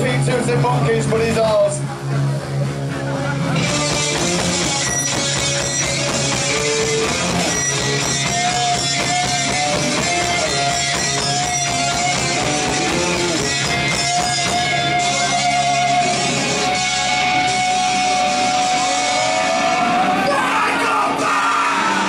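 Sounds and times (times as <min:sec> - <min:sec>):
bass guitar: 0:00.0 - 0:22.0
electric guitars strummed: 0:00.0 - 0:22.0
held guitar note: 0:03.4 - 0:20.2
steady drum beat: 0:03.6 - 0:19.4.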